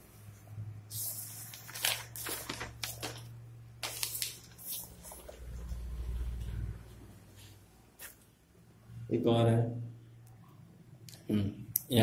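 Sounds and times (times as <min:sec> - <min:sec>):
notebook pages rustling: 0:00.9 - 0:06.1.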